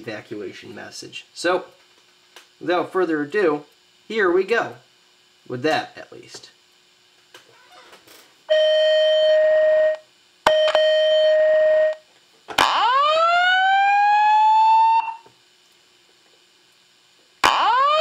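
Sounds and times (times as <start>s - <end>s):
steady alarm tones: 8.5s - 12.0s, 12.6s - 15.3s, 17.4s - 18.0s
rising whoop alarm: 12.6s - 15.3s, 17.4s - 18.0s.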